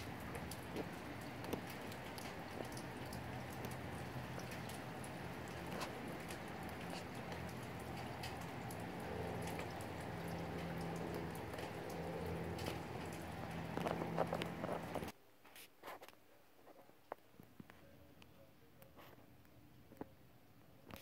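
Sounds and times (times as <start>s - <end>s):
raindrops tapping close by: 0.0s - 15.1s
steady rain: 0.0s - 15.2s.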